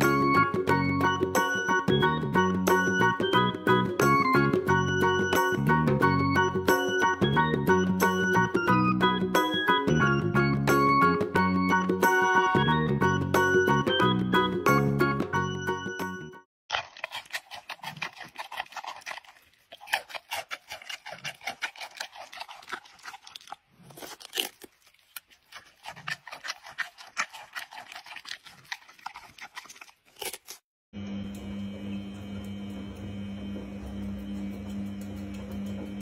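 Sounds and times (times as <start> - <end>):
panda crunching pumpkin: 16.7 - 30.6
washing machine hum: 31.0 - 36.0.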